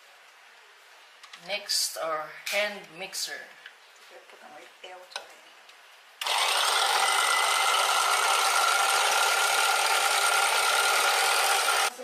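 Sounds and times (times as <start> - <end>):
electric hand mixer whining: 6.2 - 12.0.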